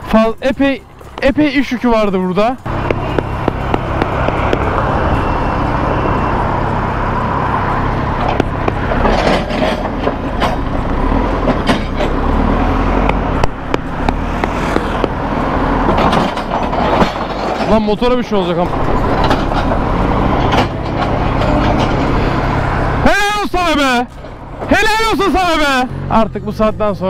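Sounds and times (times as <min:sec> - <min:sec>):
diesel engine running: 0:00.0 - 0:27.0
metal knocks and clanks: 0:00.9 - 0:05.2, 0:07.9 - 0:23.0, 0:23.6 - 0:24.8.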